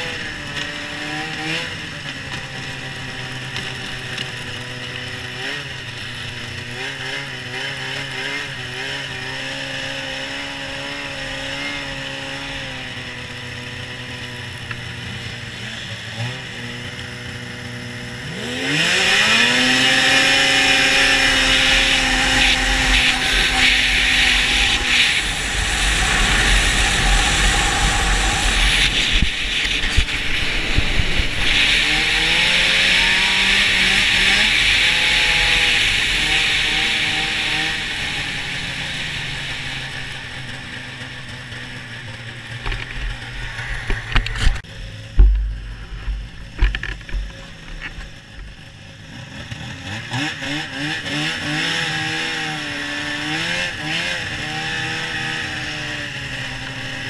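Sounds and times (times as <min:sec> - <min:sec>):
snowmobile engine: 0:00.0 - 0:57.0
snowmobile track noise: 0:00.0 - 0:57.0
wind noise: 0:19.6 - 0:40.3.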